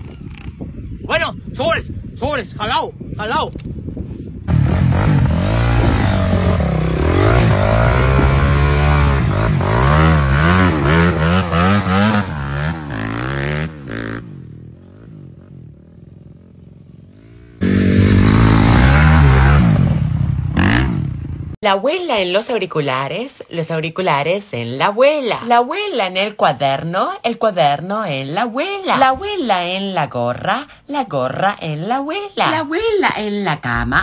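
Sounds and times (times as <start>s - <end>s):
dirt bike engine revving: 4.5s - 21.6s.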